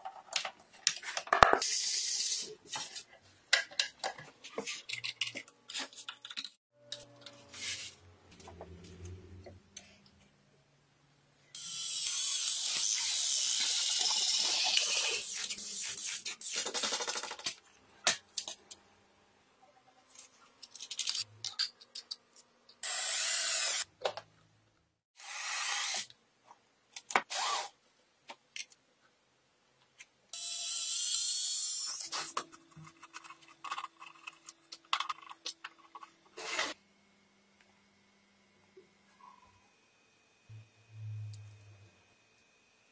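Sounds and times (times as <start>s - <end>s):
electric drill boring hole: 22.8s - 23.8s.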